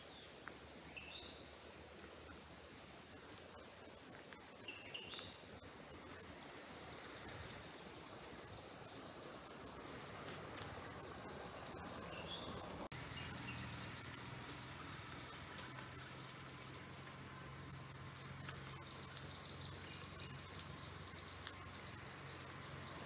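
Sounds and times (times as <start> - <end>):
insects chorus: 0.0 - 23.0
higher insect trill: 0.9 - 23.0
bird chirps: 6.5 - 23.0.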